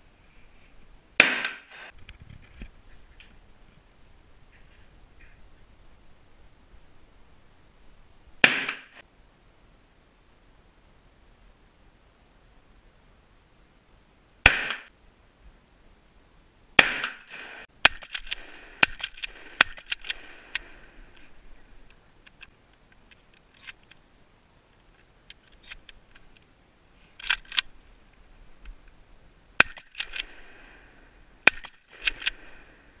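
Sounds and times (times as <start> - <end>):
shotgun shots: 1.2 - 1.9, 8.4 - 9.0, 14.4 - 14.9, 16.8 - 20.6, 31.4 - 32.5
shotgun pump clacking: 17.8 - 20.7, 27.2 - 27.7, 29.6 - 30.3, 31.4 - 32.4.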